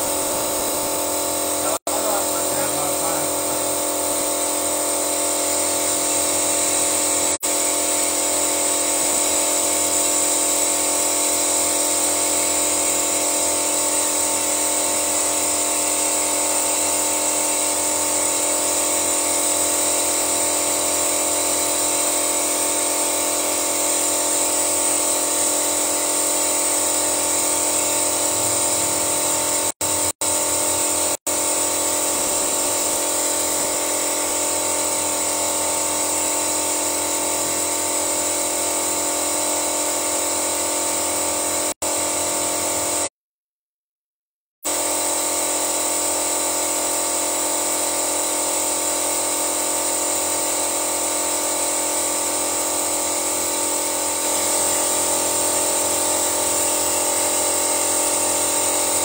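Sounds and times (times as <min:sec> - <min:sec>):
engine whine with high hiss: 0:00.0 - 0:04.1, 0:28.3 - 0:30.0.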